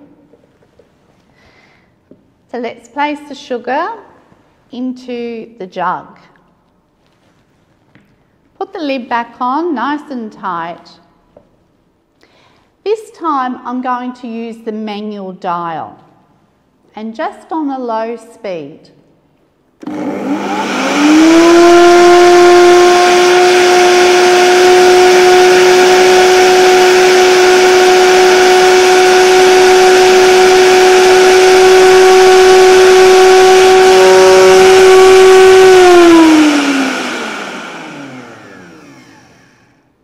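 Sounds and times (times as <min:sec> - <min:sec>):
blender motor whining: 0:19.8 - 0:39.9.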